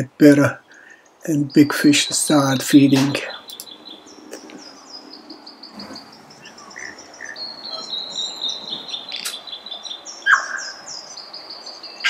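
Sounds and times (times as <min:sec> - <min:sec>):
bird chirping: 0:00.0 - 0:12.0
bird whistling low notes: 0:02.9 - 0:11.6.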